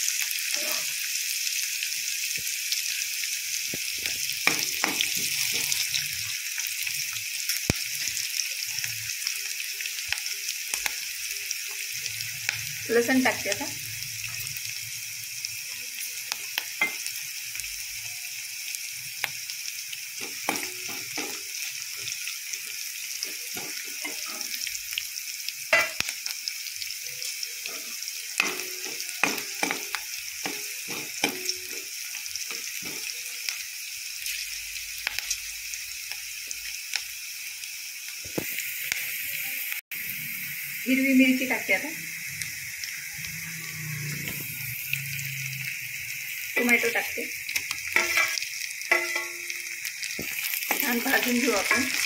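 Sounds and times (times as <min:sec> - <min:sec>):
onion sizzling in hot oil: 0:00.0 - 0:52.0
steel ladle scraping a pan: 0:23.5 - 0:24.7, 0:47.9 - 0:49.7.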